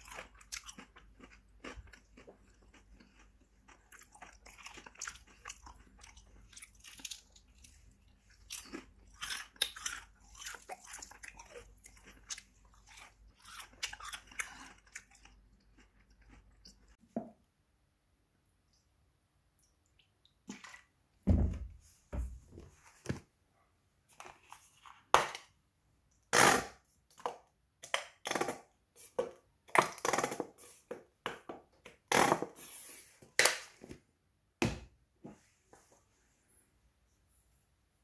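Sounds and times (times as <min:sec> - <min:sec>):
chewing crispy fried chicken: 0:00.0 - 0:17.0.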